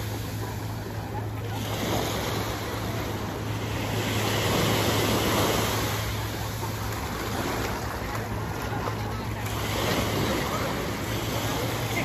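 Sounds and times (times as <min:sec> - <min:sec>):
sea waves washing onto beach: 0:00.0 - 0:12.0.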